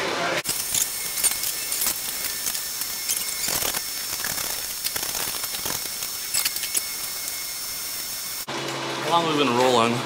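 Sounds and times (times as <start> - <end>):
small crackles: 0.5 - 8.1
torch flame hissing: 0.5 - 8.5.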